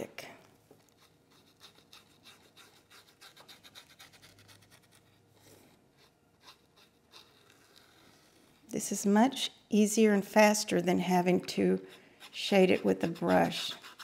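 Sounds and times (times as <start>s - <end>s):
paintbrush scratchy strokes: 0.8s - 8.6s, 11.8s - 14.0s.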